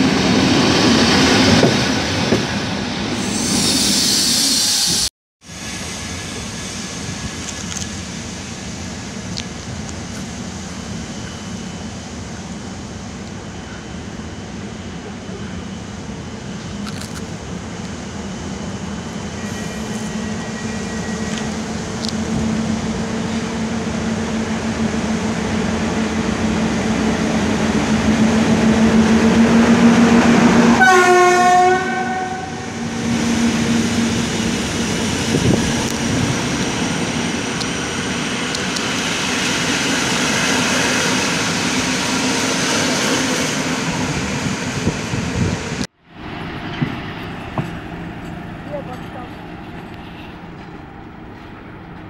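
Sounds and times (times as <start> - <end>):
electric locomotive passing: 0.0 - 52.0
train carriages rumbling: 18.9 - 52.0
train horn blast: 30.6 - 32.7.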